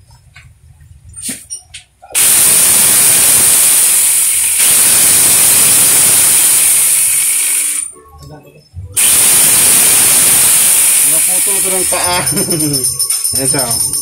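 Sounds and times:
power tool whining: 2.2 - 7.9, 9.0 - 12.3.

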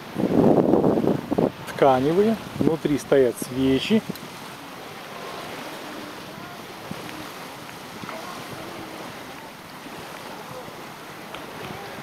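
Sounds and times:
sea surf rushing: 0.0 - 12.0
wind: 0.0 - 12.0
faint distant voices: 2.9 - 12.0.

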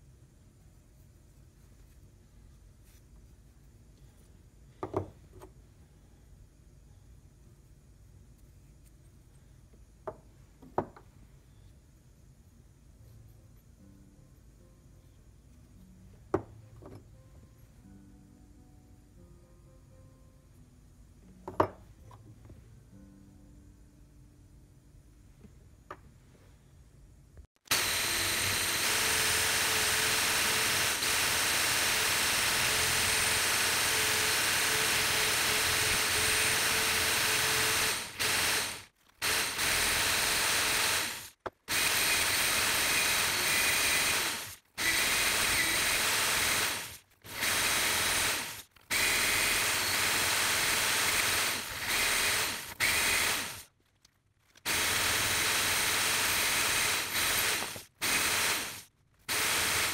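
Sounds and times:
wire brush drill scrubbing rust: 54.6 - 59.9.

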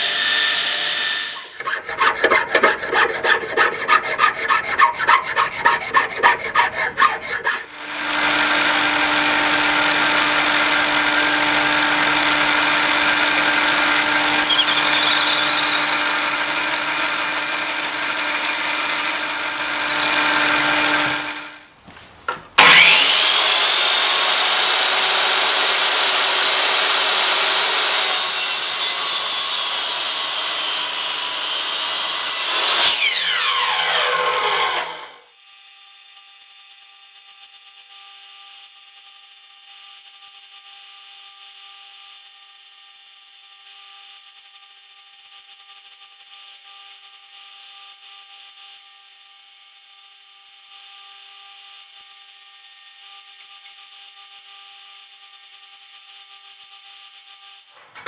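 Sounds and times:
drill boring into wood: 0.0 - 21.6, 22.6 - 30.1, 32.4 - 35.2
hand file rasping on wood: 1.4 - 7.8, 14.4 - 21.2
power sander whining: 1.4 - 21.6, 22.6 - 27.9.

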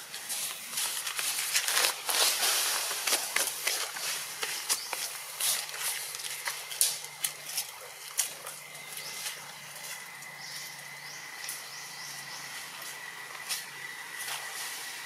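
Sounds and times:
sharp clicks and crackles: 3.0 - 9.4
faint chirps: 7.0 - 15.0.

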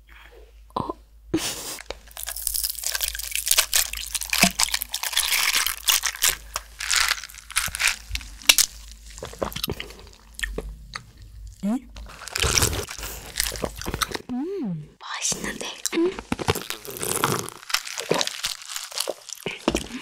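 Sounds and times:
ice crackling and clinking: 2.1 - 9.5, 16.4 - 20.0.

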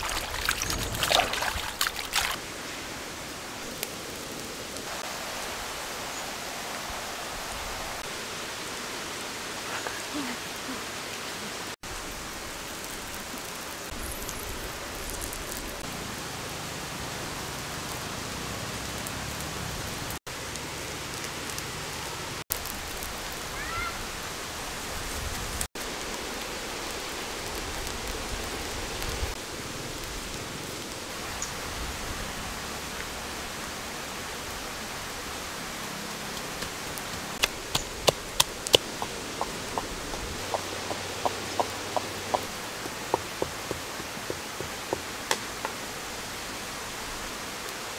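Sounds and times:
sharp pops: 37.4 - 41.0.

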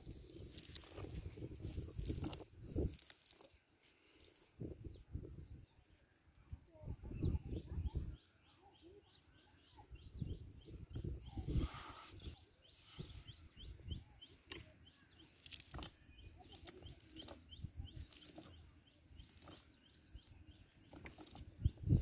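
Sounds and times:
net rustling and clicking: 0.4 - 4.5, 15.3 - 17.4, 18.0 - 18.6, 19.2 - 19.7, 20.9 - 21.5
bird chirping: 7.0 - 22.0.

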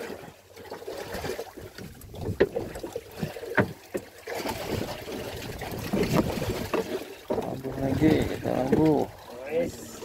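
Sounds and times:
wind and sea rushing: 0.0 - 10.0.

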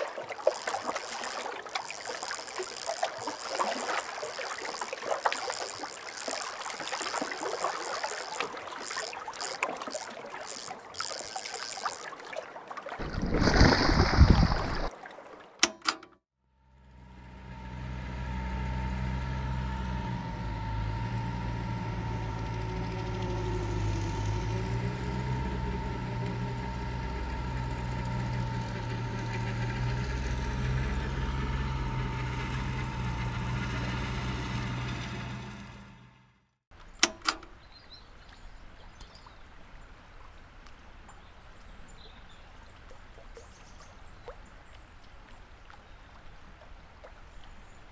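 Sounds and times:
water splashing: 0.0 - 16.1
tractor engine running: 16.7 - 36.4.

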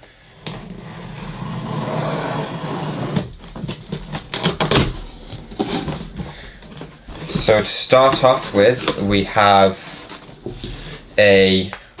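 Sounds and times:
cardboard rustling and scraping: 0.4 - 11.6
sharp scrapes and knocks: 1.1 - 9.1.

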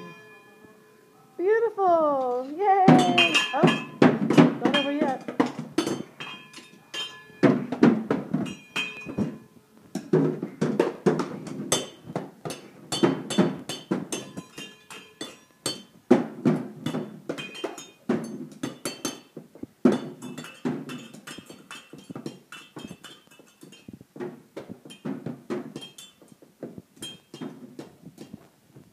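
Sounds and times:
sticks clinking on metal pot lids: 2.8 - 7.7, 8.4 - 10.1, 11.7 - 16.0, 16.9 - 24.0, 24.8 - 26.4, 27.0 - 28.5.

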